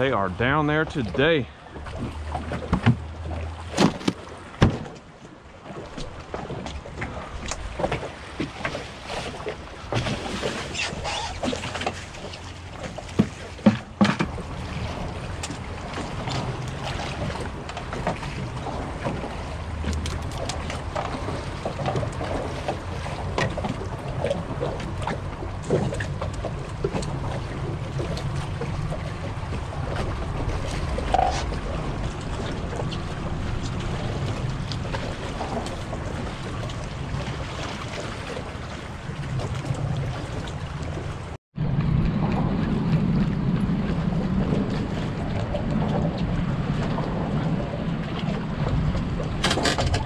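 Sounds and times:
water lapping against boat hull: 0.0s - 50.0s
wind buffeting microphone: 13.9s - 50.0s
small clicks and knocks from tackle: 19.8s - 21.2s.

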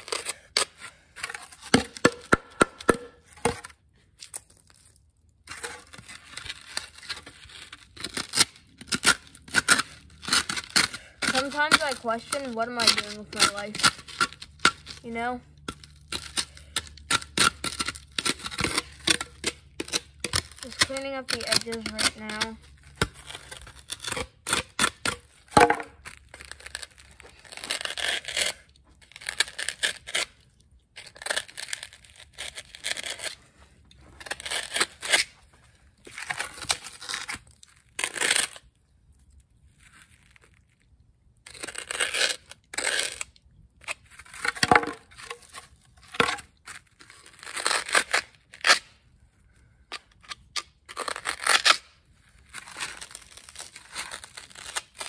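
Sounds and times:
foam board being cut: 8.0s - 15.4s, 16.0s - 25.0s.

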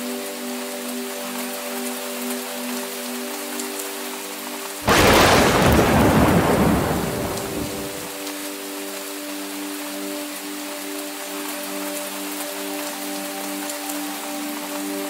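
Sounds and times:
soft background music: 0.0s - 4.8s, 8.1s - 15.0s
heavy rain: 1.8s - 15.0s
thunderclap rumbling: 4.8s - 8.1s.

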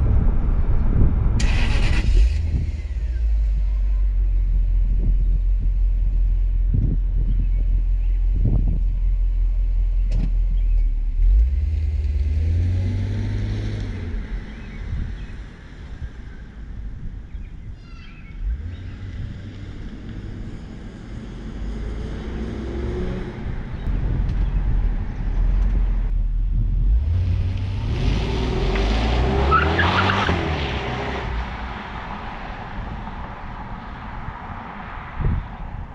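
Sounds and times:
car engine accelerating hard: 11.1s - 14.7s, 25.4s - 33.2s.

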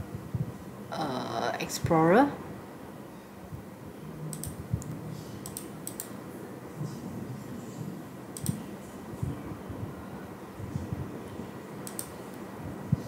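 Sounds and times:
computer mouse clicks: 4.3s - 6.2s, 8.4s - 8.6s, 11.8s - 12.4s.

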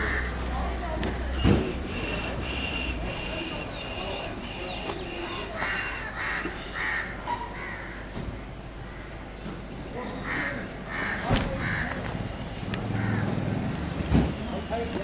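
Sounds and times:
crows cawing: 0.0s - 0.4s, 1.3s - 8.2s, 10.2s - 12.1s, 13.0s - 13.4s
high-pitched pulsing call: 1.3s - 7.1s.

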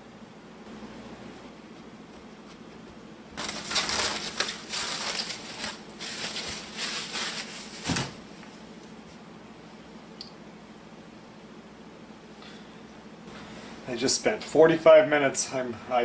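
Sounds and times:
plastic bag crinkling: 3.4s - 8.2s.

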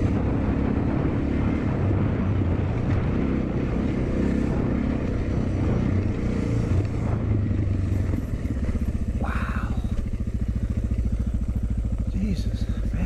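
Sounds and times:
motorcycle engine thumping: 7.9s - 13.0s.

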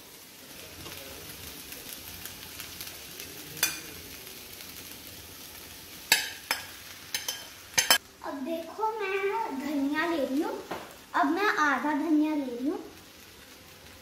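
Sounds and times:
vegetables sizzling in a pan: 0.0s - 14.0s
metal spoon clinking on pan: 3.6s - 3.9s, 6.1s - 8.0s.

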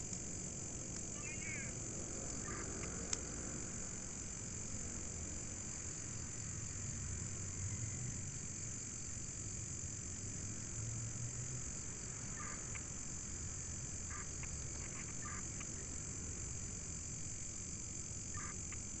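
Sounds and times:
insects droning: 0.0s - 19.0s
short animal calls: 1.2s - 1.8s, 2.4s - 2.7s, 14.1s - 15.6s, 18.4s - 18.6s.

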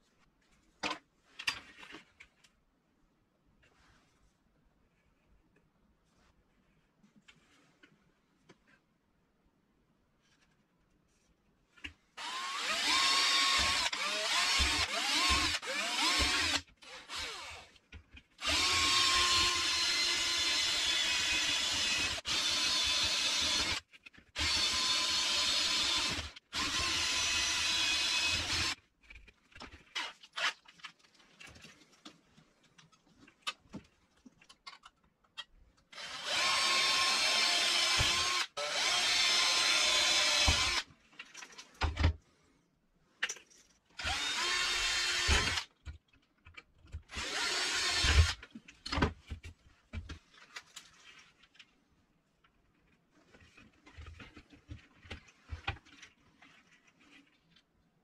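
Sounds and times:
cordless drill drilling into plastic pipe: 12.2s - 17.7s, 18.4s - 23.8s, 24.4s - 28.8s, 35.9s - 40.9s, 44.0s - 45.7s, 47.1s - 48.4s.

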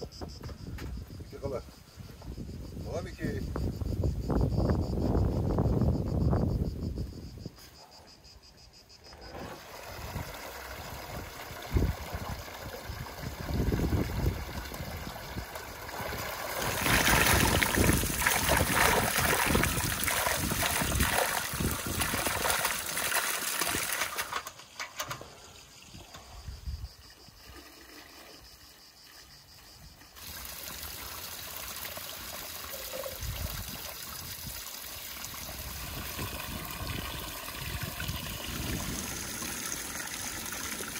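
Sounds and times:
water running from spout: 9.3s - 26.1s, 30.2s - 40.9s
berries splashing into water: 16.1s - 24.3s.

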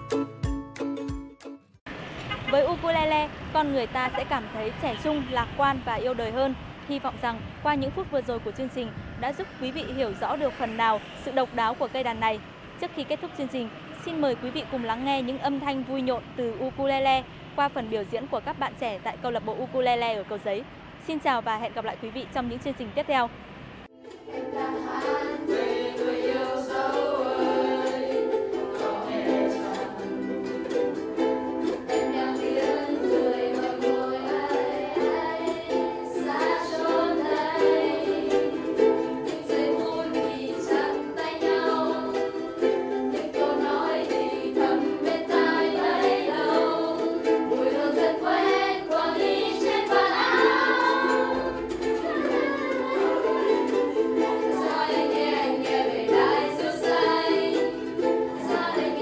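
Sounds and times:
ukuleles strummed: 0.0s - 1.7s, 24.0s - 59.0s
voices singing: 24.1s - 59.0s.

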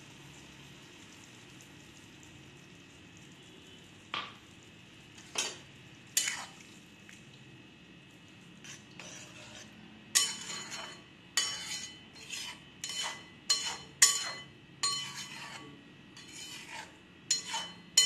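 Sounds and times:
spatula scraping pan: 6.2s - 6.6s, 8.6s - 18.0s
spatula clinking against metal pan: 10.2s - 18.0s.

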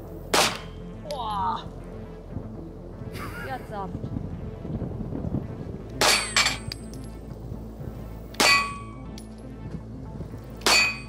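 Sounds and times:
pistol shots: 0.3s - 0.8s
steel target plate ringing: 6.0s - 6.8s, 8.4s - 9.0s, 10.6s - 11.0s.

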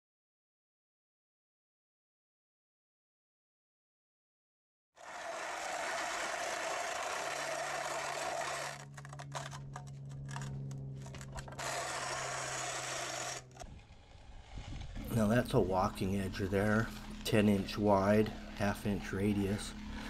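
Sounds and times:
edger scraping concrete: 5.0s - 20.0s
steady low hum: 5.2s - 20.0s.

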